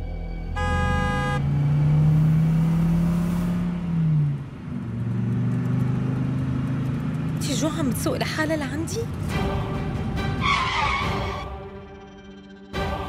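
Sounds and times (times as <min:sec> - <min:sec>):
car horn: 0:00.4 - 0:01.6.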